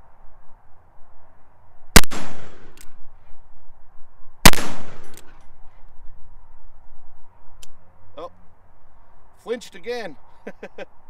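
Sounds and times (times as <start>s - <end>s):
revolver shots with echo: 4.5s - 5.2s.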